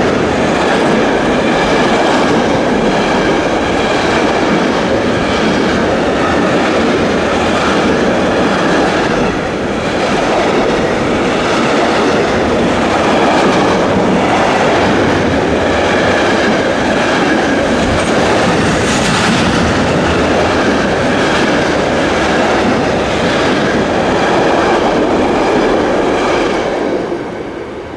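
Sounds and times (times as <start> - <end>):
train wheels rumbling on rail: 0.0 - 27.9.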